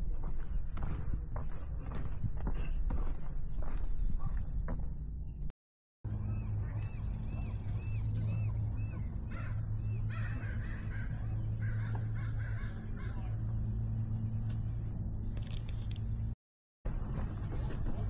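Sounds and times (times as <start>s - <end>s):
birds calling: 6.1s - 14.8s
low hum: 6.1s - 18.0s.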